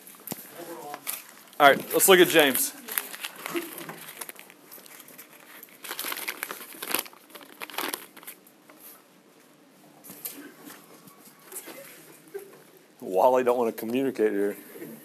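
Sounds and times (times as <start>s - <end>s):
paper crinkling: 0.3s - 9.0s.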